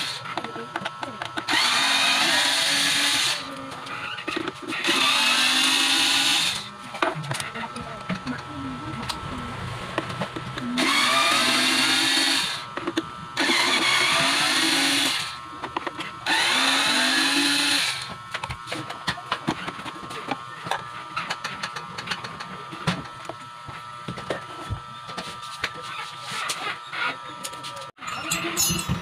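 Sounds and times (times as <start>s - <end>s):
cordless electric screwdriver running: 0.0s - 0.2s, 1.5s - 3.6s, 4.8s - 6.7s, 10.8s - 12.7s, 13.4s - 15.4s, 16.2s - 18.1s.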